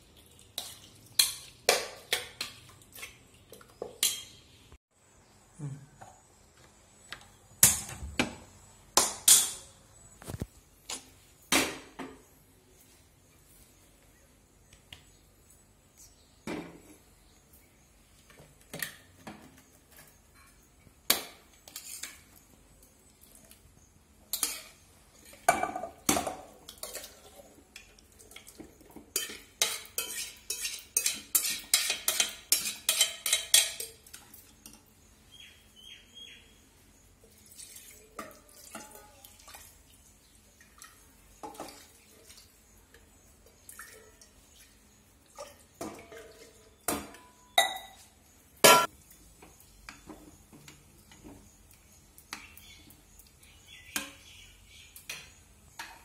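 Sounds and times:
metal pots and utensils clinking: 0.5 - 4.4, 9.0 - 9.7, 18.3 - 22.5, 24.3 - 34.9, 37.3 - 39.6, 45.4 - 49.0, 53.8 - 54.4, 55.0 - 56.0.

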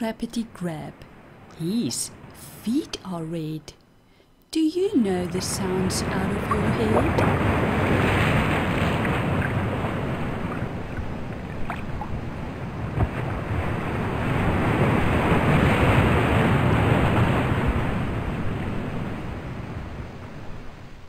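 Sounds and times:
ocean waves breaking on beach: 5.1 - 21.0.

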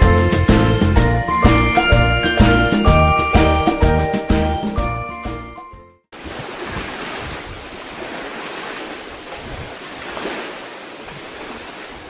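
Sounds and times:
sea waves washing on shore: 6.2 - 12.0.

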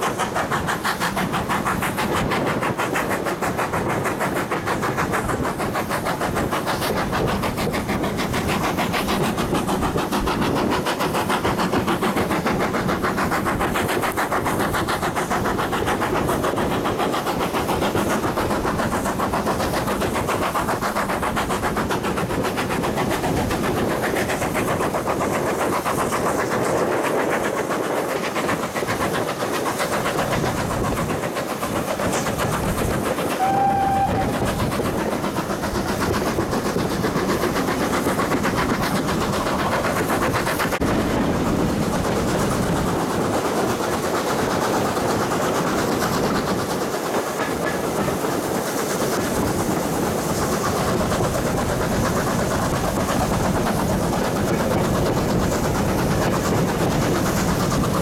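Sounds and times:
train wheels on rails: 0.0 - 58.0
short high tone: 33.4 - 34.3.

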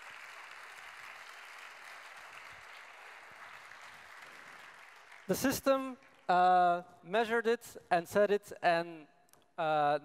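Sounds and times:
faint audience applause: 0.0 - 6.3.

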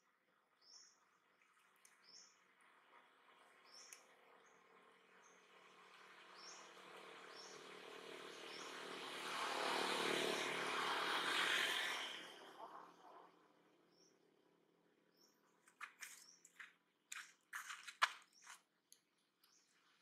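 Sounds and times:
vehicle passing by: 4.6 - 14.2.

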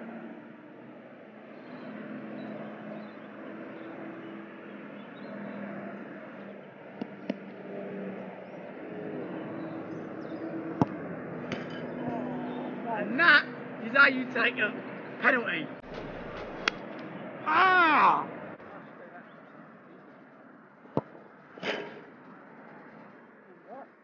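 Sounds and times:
distant traffic drone: 0.0 - 24.0
football kicked hard: 10.8 - 11.0, 15.9 - 16.7.

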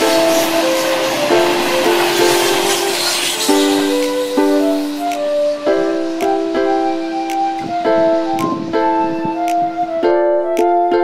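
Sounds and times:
music with held chords: 0.0 - 11.0
light percussion ticks: 3.7 - 5.4, 6.0 - 7.7, 8.3 - 8.8, 9.4 - 9.7.

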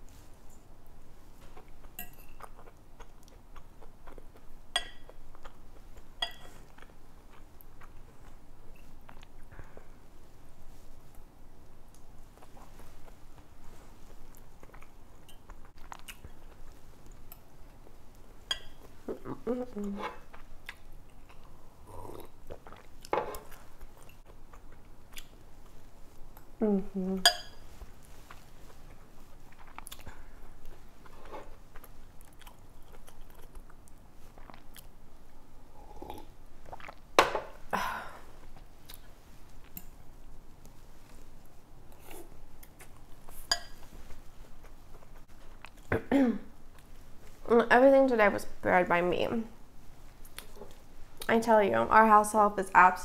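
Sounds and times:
chewing: 1.4 - 9.9, 11.9 - 26.6, 27.3 - 35.0, 35.7 - 37.1, 38.4 - 40.0, 40.6 - 46.0
fork clinking against glass bowl: 2.0 - 2.4, 4.8 - 5.1, 6.2 - 6.5, 18.5 - 18.8, 27.2 - 27.6, 43.5 - 43.8.

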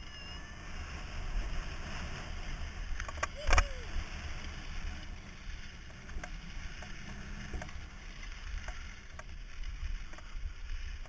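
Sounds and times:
bike rolling on asphalt: 0.0 - 11.0
wind rumbling on microphone: 0.0 - 11.0.

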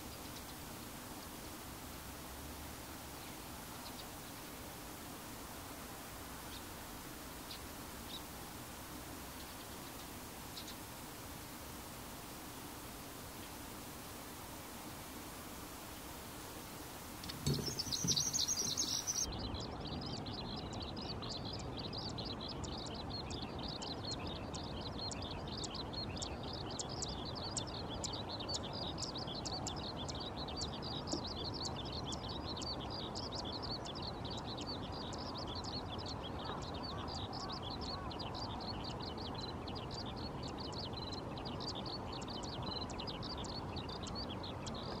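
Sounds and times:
skylark singing: 9.0 - 45.0.

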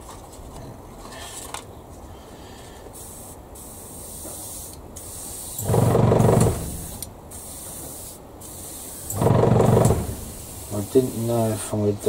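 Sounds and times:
faint steady hiss: 0.2 - 12.0
airbrush spray burst: 3.0 - 11.7.

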